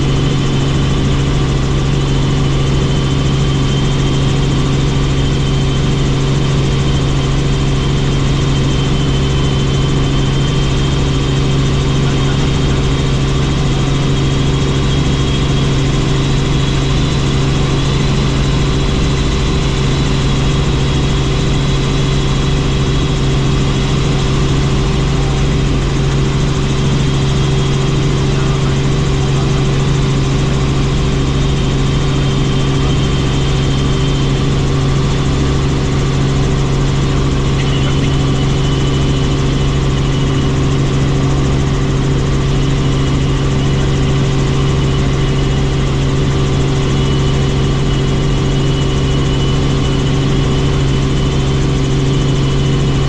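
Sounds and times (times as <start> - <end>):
helicopter engine and rotor drone: 0.0 - 53.0
high-pitched whine: 0.0 - 53.0.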